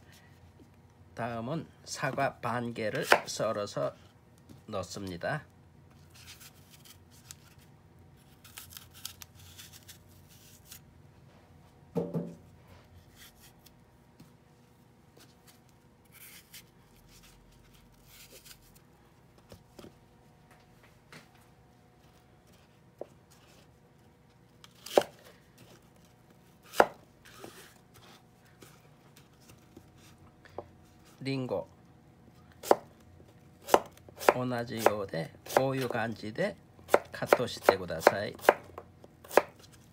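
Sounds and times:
knife slicing apple: 2.9s - 3.4s, 24.6s - 25.2s, 26.6s - 27.7s, 32.6s - 32.9s, 33.6s - 36.0s, 36.9s - 39.7s
knife knocking on cutting board: 12.0s - 12.4s.

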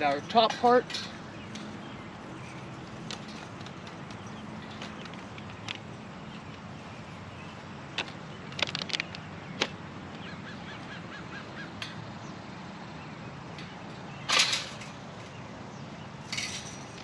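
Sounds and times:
outdoor background noise: 0.0s - 17.0s
metal parts clinking and clattering: 0.5s - 1.8s, 14.3s - 15.0s, 16.3s - 17.0s.

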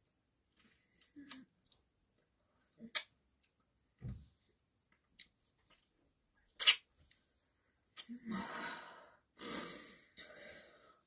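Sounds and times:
wet mouth smacks: 6.6s - 6.8s.

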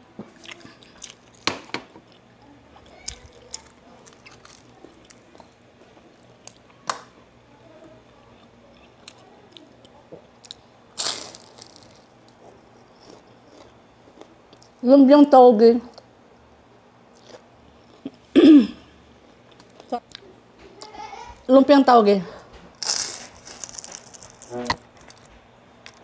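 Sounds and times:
chewing: 0.3s - 6.7s, 8.3s - 14.8s, 17.1s - 18.2s, 22.8s - 26.0s
crunchy bite into spring roll: 11.0s - 13.6s.

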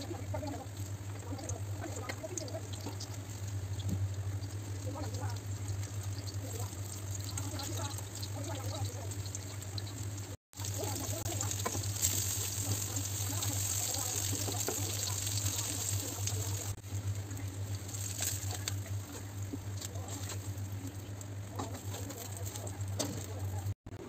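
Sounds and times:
fritters sizzling in oil: 0.0s - 23.8s
low even hum: 0.0s - 24.0s.

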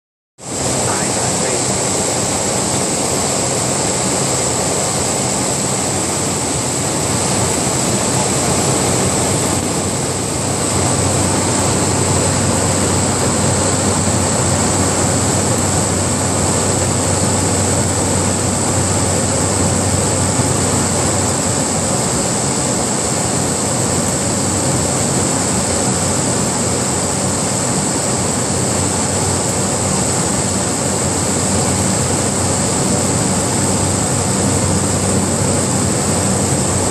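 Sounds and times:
rushing air: 0.4s - 29.0s, 29.6s - 36.9s
plane engine and propeller drone: 0.4s - 36.9s.

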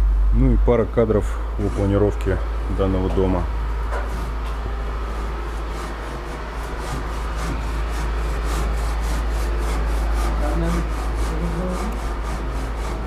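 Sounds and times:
steady low rumble: 0.0s - 5.4s.

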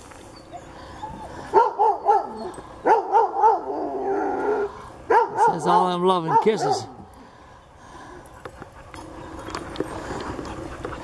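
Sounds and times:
dog whining: 0.3s - 7.0s
dog yelping: 0.3s - 7.0s.

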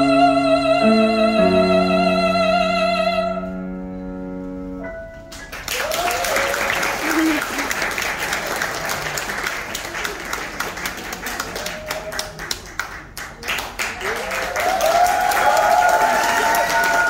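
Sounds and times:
audience applauding: 5.3s - 17.0s.

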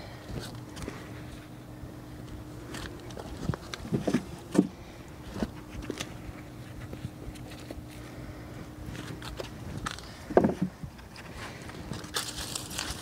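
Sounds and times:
faint steady hum: 0.0s - 13.0s
knocks and thumps: 10.3s - 11.0s
hands rustling in soil: 11.0s - 13.0s.

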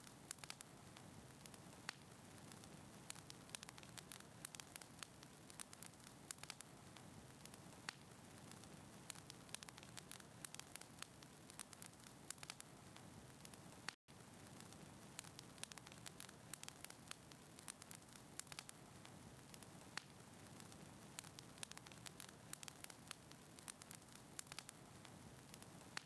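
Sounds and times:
wood fire crackling: 0.0s - 26.0s.

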